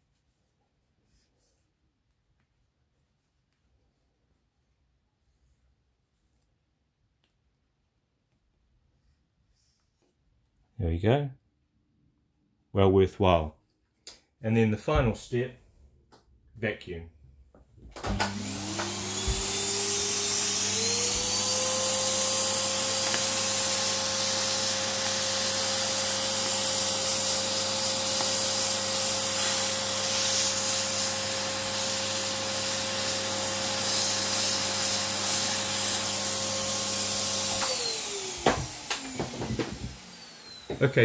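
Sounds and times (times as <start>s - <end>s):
vacuum cleaner running: 17.9s - 41.0s.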